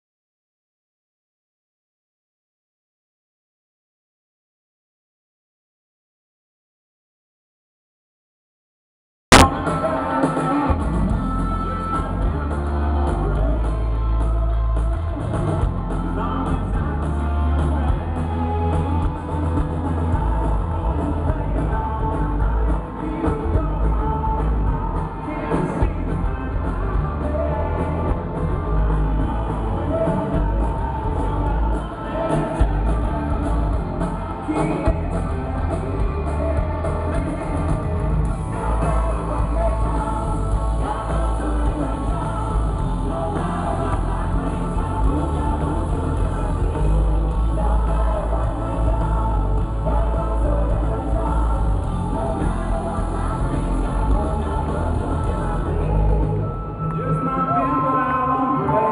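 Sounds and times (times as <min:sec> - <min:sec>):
drums: 0:09.3 - 0:58.9
electric guitars: 0:09.3 - 0:58.9
person singing: 0:09.3 - 0:58.9
heavy low bass: 0:10.6 - 0:56.5.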